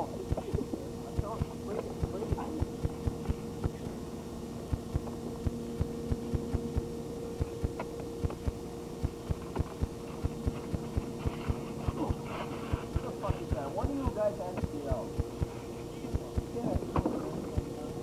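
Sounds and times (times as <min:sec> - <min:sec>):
steady hum: 0:00.0 - 0:18.0.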